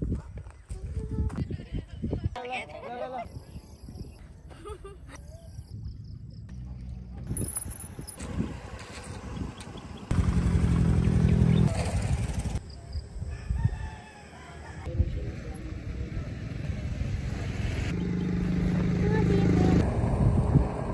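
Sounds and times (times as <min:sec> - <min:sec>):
loud engine-like hum: 0:08.2 - 0:12.6, 0:15.4 - 0:20.9
rooster crowing: 0:13.3 - 0:14.9.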